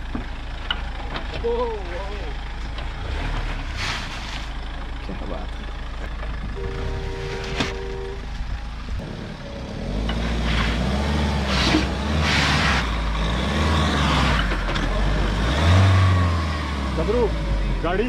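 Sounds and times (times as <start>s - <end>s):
suv engine revving under load: 6.0s - 18.0s.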